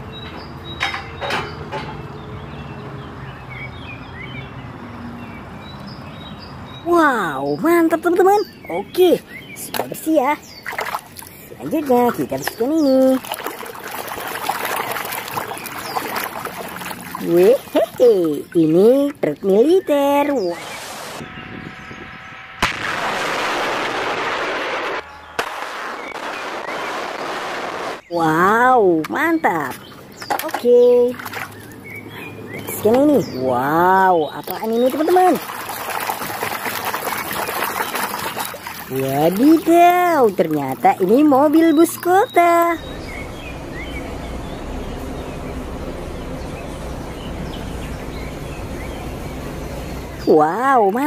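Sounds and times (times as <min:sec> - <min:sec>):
sharp bang: 0:22.5 - 0:28.0
rockets launching rushing noise: 0:22.6 - 0:28.0
diesel engine rumbling: 0:28.2 - 0:51.0.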